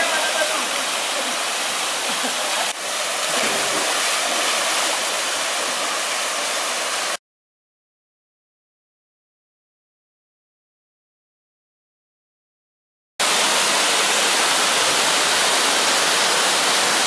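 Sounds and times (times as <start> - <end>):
small waterfall rushing: 0.0 - 7.2, 13.2 - 17.0.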